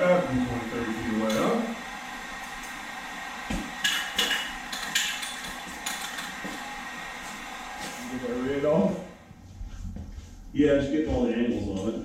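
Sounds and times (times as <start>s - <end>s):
tools clacking and tapping: 3.8s - 6.5s.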